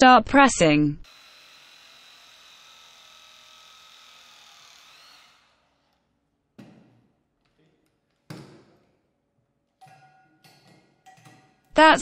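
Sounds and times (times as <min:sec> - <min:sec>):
press tool motor whine: 0:01.0 - 0:06.0.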